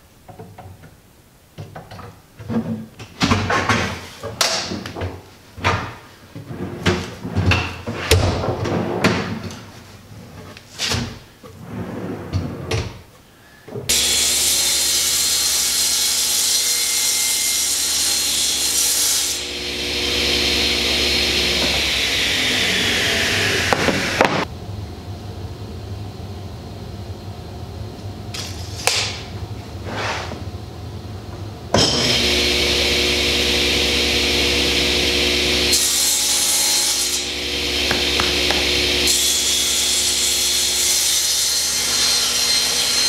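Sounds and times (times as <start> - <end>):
table saw running: 13.9 - 24.5, 31.9 - 43.0.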